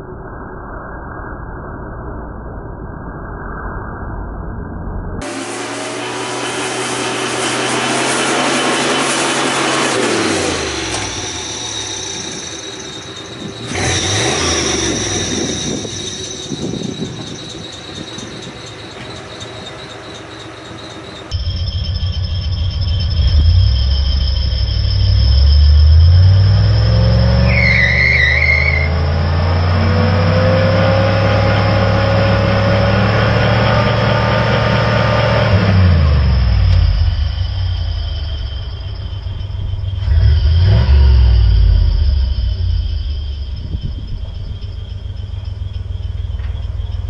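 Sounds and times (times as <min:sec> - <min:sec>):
tire squealing: 0:04.6 - 0:47.0
engine revving hard: 0:05.2 - 0:16.9, 0:25.0 - 0:37.3, 0:40.0 - 0:43.3.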